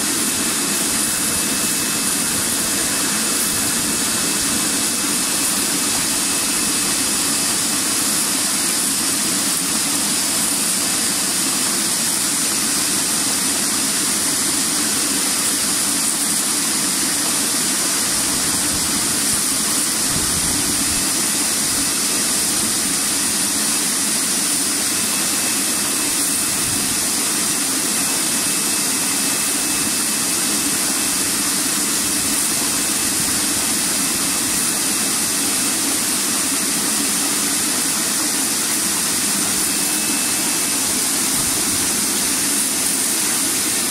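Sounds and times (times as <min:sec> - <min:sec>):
machine drone: 0:00.0 - 0:43.9
water rushing and hissing: 0:00.0 - 0:43.9.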